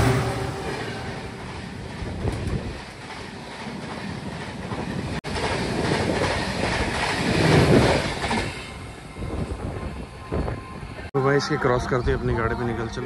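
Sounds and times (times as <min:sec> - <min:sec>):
train wheels clattering on rails: 0:00.0 - 0:10.6
train coaches whooshing past: 0:00.0 - 0:11.1.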